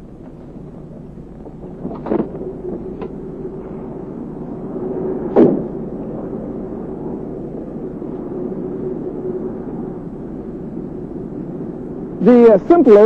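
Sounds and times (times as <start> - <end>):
machinery drone: 0.0 - 13.0
loud thump: 5.3 - 5.7.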